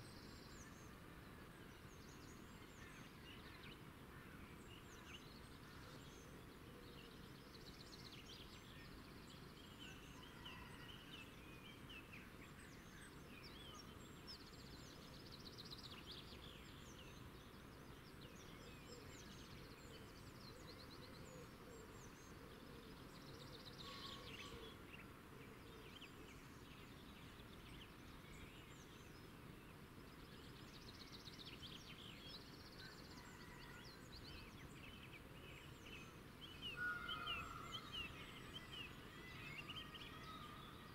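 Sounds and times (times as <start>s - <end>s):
low background hiss: 0.0s - 40.9s
small birds chirping: 1.6s - 40.9s.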